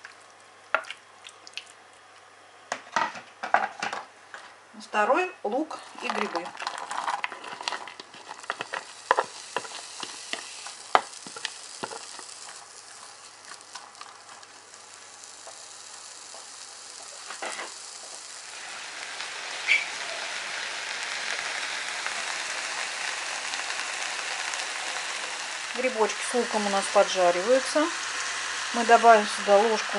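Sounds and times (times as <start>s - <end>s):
onion frying in hot oil: 6.0s - 29.9s
spatula tapping and scraping pan: 7.4s - 12.1s.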